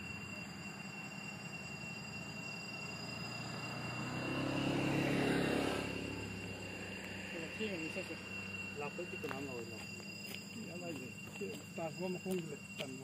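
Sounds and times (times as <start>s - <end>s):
motor vehicle passing: 3.1s - 9.0s.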